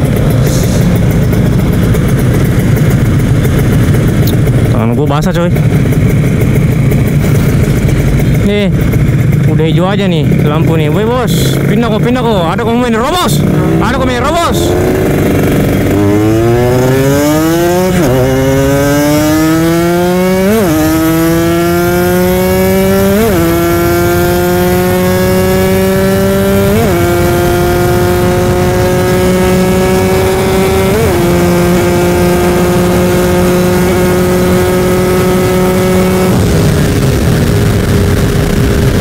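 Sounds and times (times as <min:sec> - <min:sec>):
motorcycle engine accelerating: 0:00.0 - 0:39.0
wind rushing over microphone: 0:22.2 - 0:39.0.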